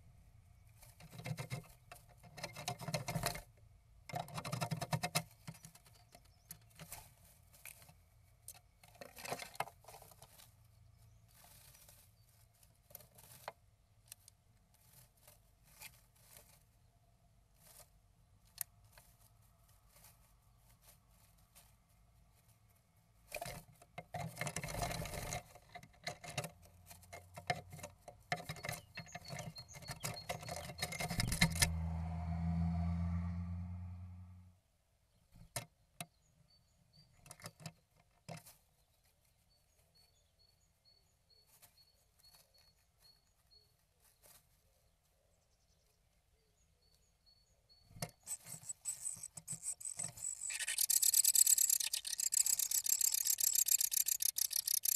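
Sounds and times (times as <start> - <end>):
bird scratching in nest moss: 0.7 - 3.5, 17.6 - 31.8, 48.0 - 54.9.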